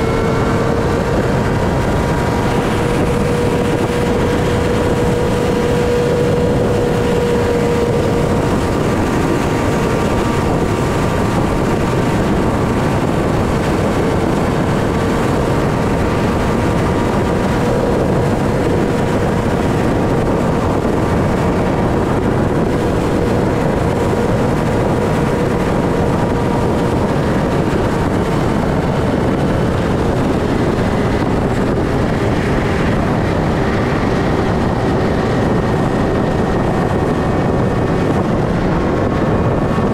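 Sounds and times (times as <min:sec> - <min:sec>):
motorcycle engine cruising: 0:00.0 - 0:39.9
wind and road noise: 0:00.0 - 0:39.9.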